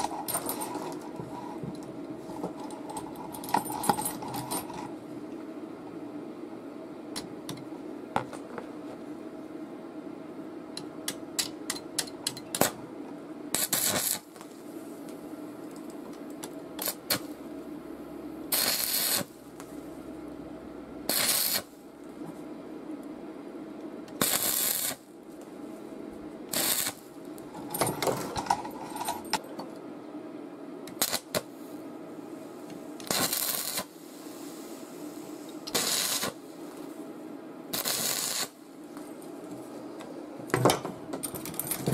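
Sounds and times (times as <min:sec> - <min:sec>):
steady low hum: 0:00.0 - 0:41.9
arc welding crackling: 0:13.5 - 0:17.6, 0:18.5 - 0:19.8, 0:21.1 - 0:21.8, 0:24.1 - 0:25.1, 0:26.5 - 0:27.2, 0:30.9 - 0:31.5, 0:33.0 - 0:34.0, 0:35.5 - 0:36.6, 0:37.7 - 0:38.7.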